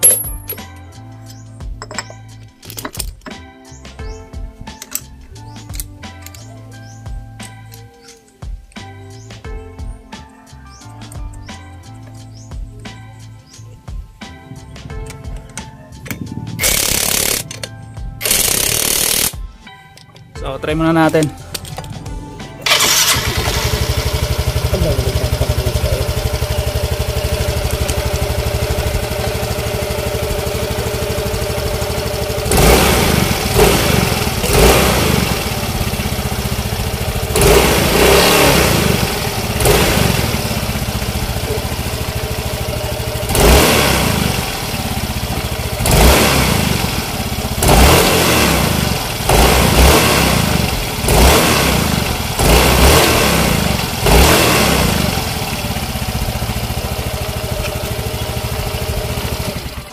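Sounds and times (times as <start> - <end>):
scooter engine idling and revving: 0.0 - 2.2, 14.0 - 19.5, 21.8 - 59.9.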